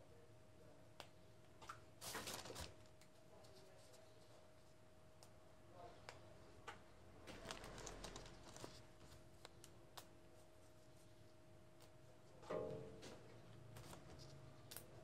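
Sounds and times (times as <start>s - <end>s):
faint steady hum: 0.0s - 15.0s
plastic bag crinkling: 7.3s - 8.9s.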